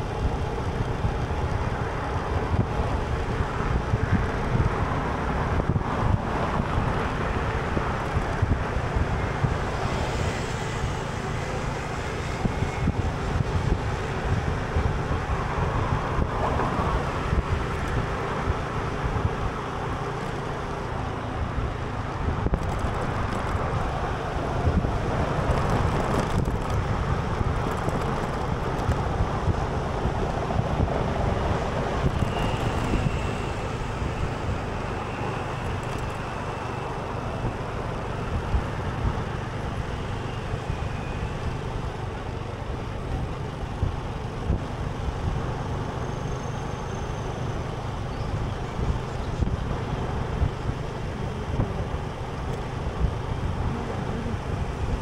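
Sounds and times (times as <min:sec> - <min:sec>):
wind on microphone: 0:00.0 - 0:19.9, 0:20.8 - 0:46.0, 0:47.3 - 0:55.0
road traffic rumble: 0:00.0 - 0:55.0.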